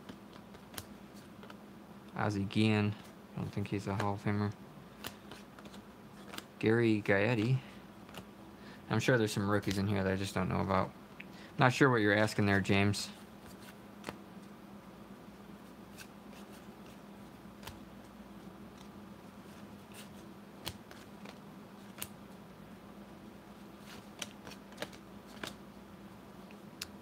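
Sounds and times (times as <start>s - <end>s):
cards clicking and tapping: 0.0s - 1.6s, 5.0s - 6.5s, 7.4s - 8.3s, 17.6s - 18.9s, 19.9s - 22.2s, 23.8s - 25.6s
low steady hum: 0.0s - 27.0s.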